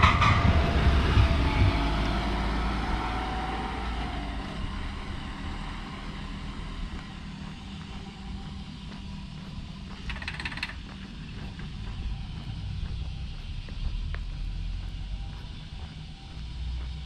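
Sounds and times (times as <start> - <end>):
van driving past: 0.0 - 9.7
faint whine: 0.0 - 17.0.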